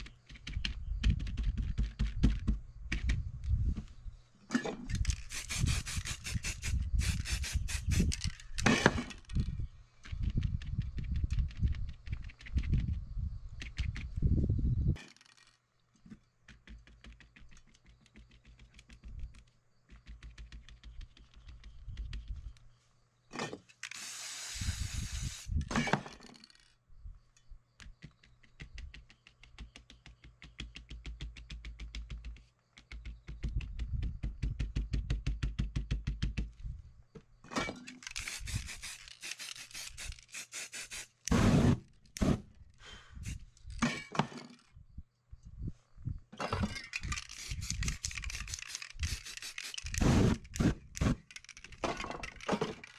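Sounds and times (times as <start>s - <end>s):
spray-paint can hissing: 5.2s - 8.2s, 24.0s - 25.5s, 38.1s - 41.3s, 47.2s - 50.4s.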